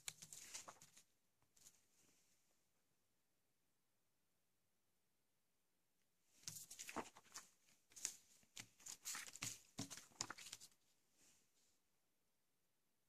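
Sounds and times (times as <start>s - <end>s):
paper leaflets rustling: 0.0s - 1.8s, 6.4s - 10.8s.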